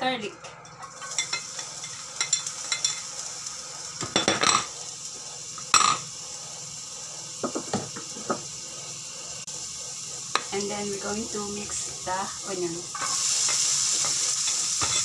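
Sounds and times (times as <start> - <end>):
hot oil sizzling in a pan: 0.0 - 15.0
spatula and bowl clattering on pan: 0.8 - 3.1, 4.0 - 4.8, 5.7 - 6.1, 13.0 - 15.0.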